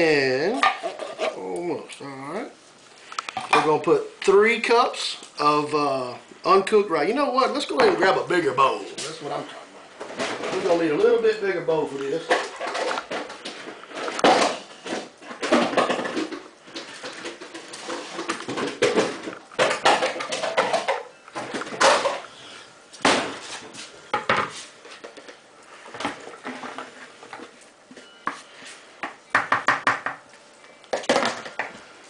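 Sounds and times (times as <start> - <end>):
bowls and dishes clattering: 12.2 - 22.3.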